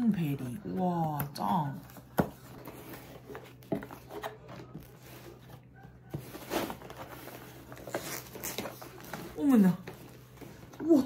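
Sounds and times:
low steady hum: 0.0 - 11.0
packaging rustling and tearing: 1.9 - 10.8.

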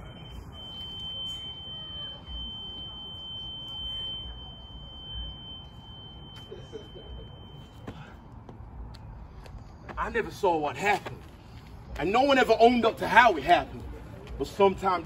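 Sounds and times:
continuous high-pitched electronic tone: 0.0 - 8.3.

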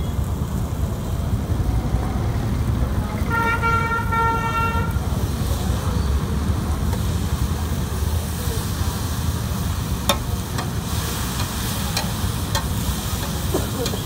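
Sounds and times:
low rumble of street noise: 0.0 - 14.0
vehicle horn: 3.2 - 5.0.

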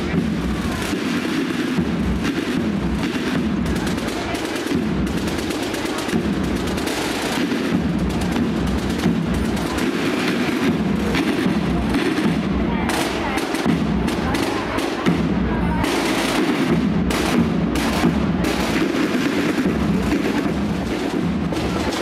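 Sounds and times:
firecrackers going off: 0.0 - 22.0.

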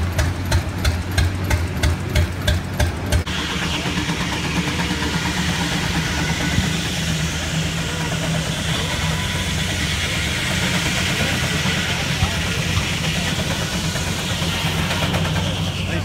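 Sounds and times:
engine humming: 0.0 - 16.0.

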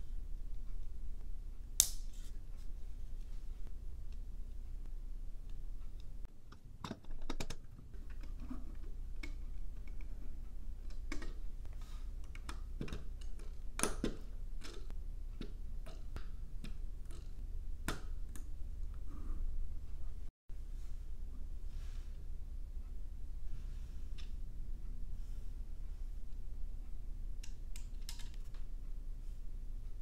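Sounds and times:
plastic bricks clicking and snapping: 6.5 - 8.4.

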